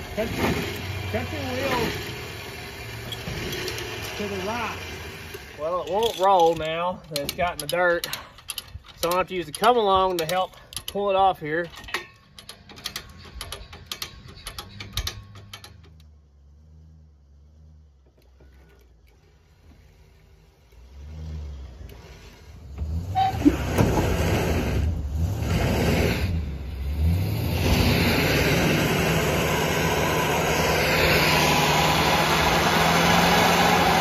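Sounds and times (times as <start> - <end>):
pickup truck engine revving: 0.0 - 5.6, 20.8 - 34.0.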